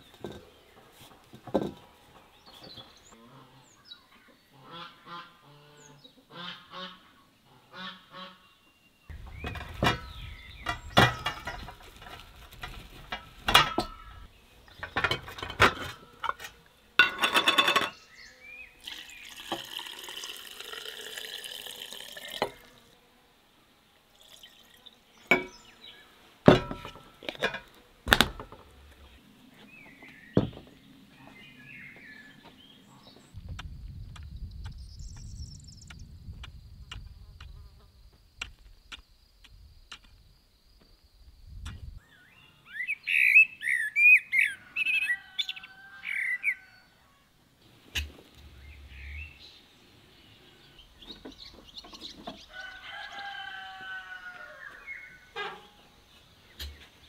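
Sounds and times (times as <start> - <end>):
fowl and small birds calling: 0.0 - 19.4, 24.7 - 33.4, 42.0 - 57.0
glass jars clinking: 14.8 - 18.0, 18.9 - 22.7, 25.3 - 25.6
liquid pouring into a jar: 18.8 - 22.8, 24.2 - 24.9.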